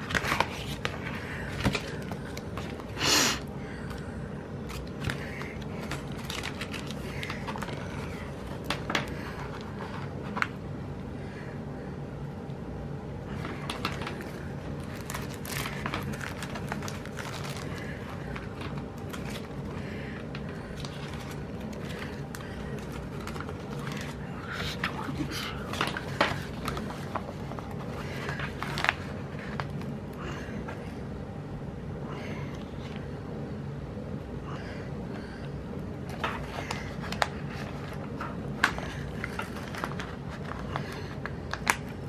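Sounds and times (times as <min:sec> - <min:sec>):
paper rustling and clicking: 0:00.0 - 0:03.0, 0:04.7 - 0:10.6, 0:13.3 - 0:29.9, 0:36.1 - 0:42.0
low steady hum: 0:00.0 - 0:42.0.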